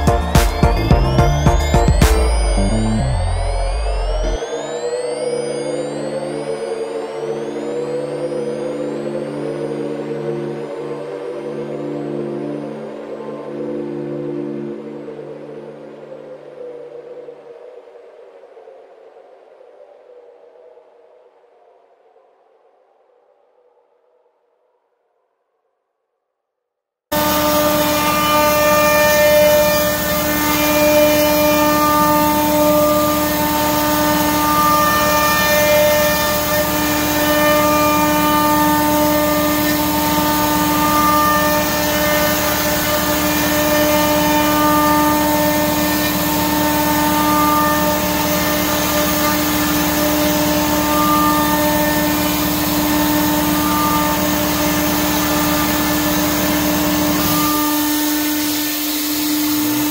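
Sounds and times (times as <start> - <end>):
router spindle whining: 0.0 - 13.1, 27.1 - 59.9.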